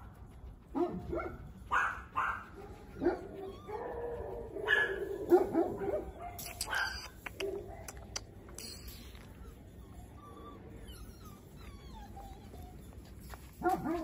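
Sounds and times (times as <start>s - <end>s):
puppy whining: 0.0s - 14.0s
puppy barking: 0.7s - 8.2s, 13.5s - 14.0s
sharp clicks: 6.4s - 9.1s.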